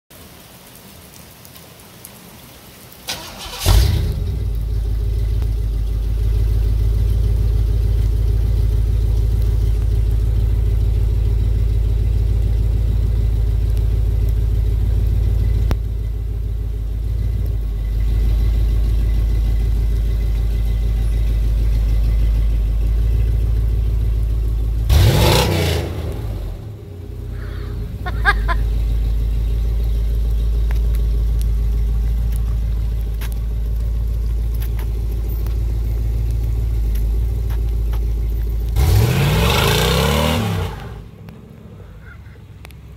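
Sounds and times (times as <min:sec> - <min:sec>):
light rain patter: 0:00.0 - 0:42.9
car engine cranking and idling: 0:03.0 - 0:42.9
engine revving: 0:03.1 - 0:05.4, 0:17.8 - 0:33.9, 0:38.7 - 0:41.7.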